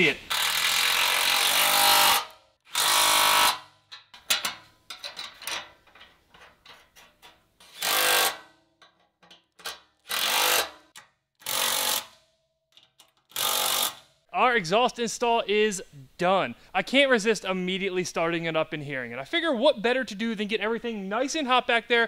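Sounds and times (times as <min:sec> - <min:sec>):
impact wrench hammering bolts: 0:00.3 - 0:14.1
hand ratchet clicking: 0:07.6 - 0:12.2, 0:12.8 - 0:14.1.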